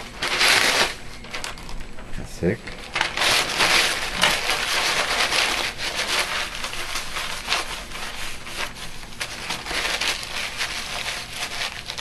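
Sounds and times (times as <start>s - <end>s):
paper towel rubbing on metal scraper: 3.2s - 12.0s.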